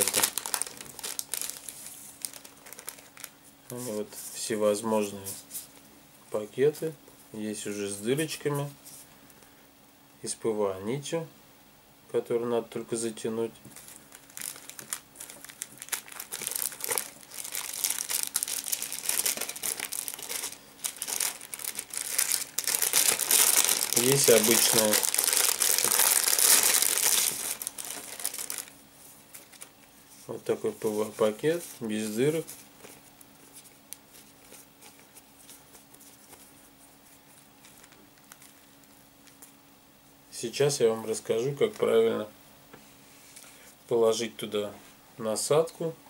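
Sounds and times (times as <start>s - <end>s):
plastic bag crackling: 0.0s - 4.0s, 13.6s - 36.6s, 37.6s - 39.6s
plastic packaging crinkling: 0.0s - 4.1s, 13.6s - 36.7s, 37.3s - 39.6s
faint low hum: 0.0s - 46.0s.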